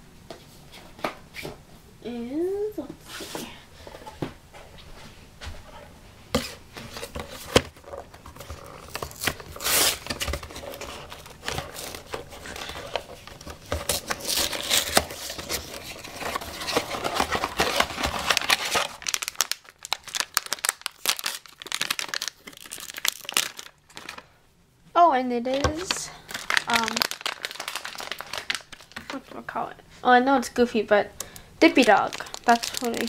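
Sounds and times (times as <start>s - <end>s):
foil wrapper tearing and crinkling: 7.8s - 24.3s, 25.7s - 29.2s, 31.6s - 33.0s.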